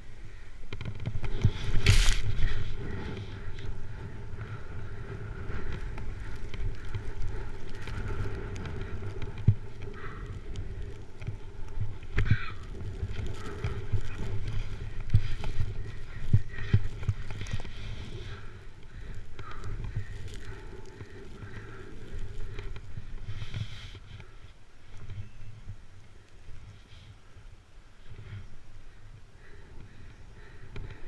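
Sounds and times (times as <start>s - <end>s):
snowboard edge scraping: 1.2s - 3.3s
snowboard sliding on snow: 1.2s - 9.8s, 10.4s - 18.7s, 19.8s - 24.2s.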